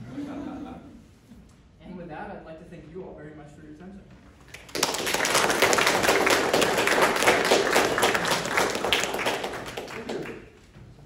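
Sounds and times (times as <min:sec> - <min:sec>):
audience applauding: 0:04.5 - 0:10.6.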